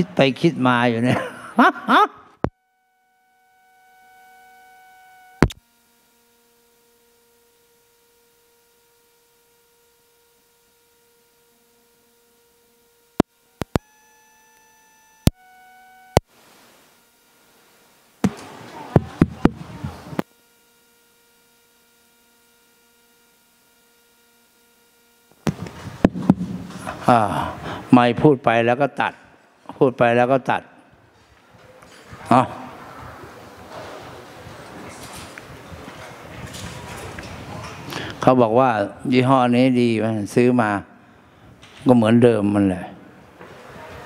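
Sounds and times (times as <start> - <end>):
electronic tones: 2.3 - 5.6, 13.2 - 16.3
crackling noise: 2.3 - 22.6
sharp clicks: 13.2 - 13.9.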